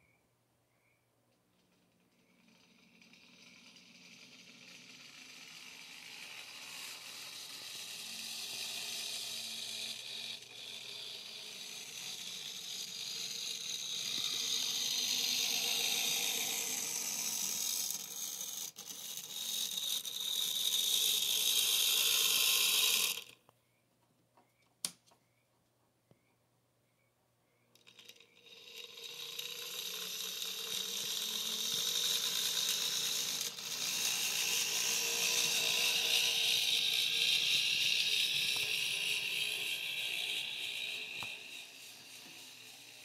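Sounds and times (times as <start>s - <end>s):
model locomotive motor whirring: 1.7s - 23.4s, 27.8s - 43.0s
sharp click: 24.8s - 25.2s.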